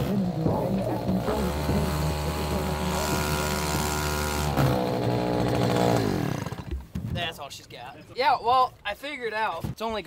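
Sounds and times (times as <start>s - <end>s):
small outboard motor running: 0.0s - 6.8s.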